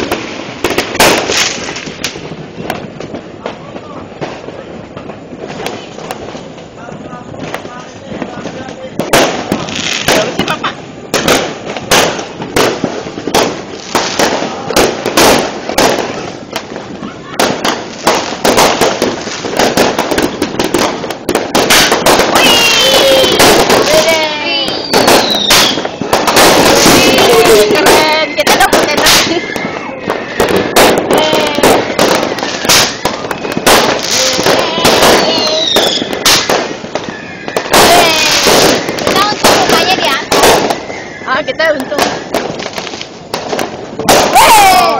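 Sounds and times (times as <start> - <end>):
fireworks bangs and crackling: 0.0 - 44.9.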